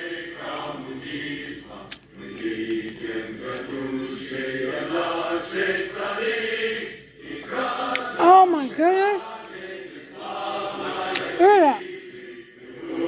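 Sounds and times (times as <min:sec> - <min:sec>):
woman humming: 0:11.4 - 0:11.8.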